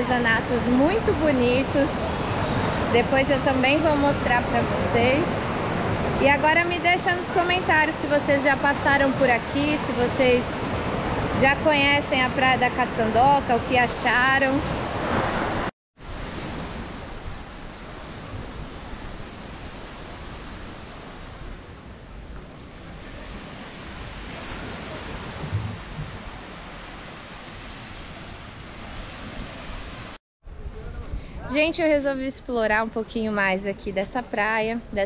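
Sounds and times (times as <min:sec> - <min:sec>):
wind on microphone: 0:00.0 - 0:32.5
small waves washing up a beach: 0:14.6 - 0:30.2.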